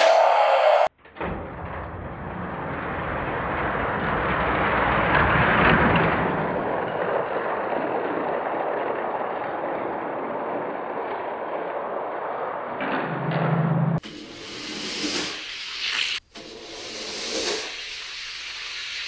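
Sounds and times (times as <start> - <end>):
toy cars rolling down plastic track: 2.6 - 12.8.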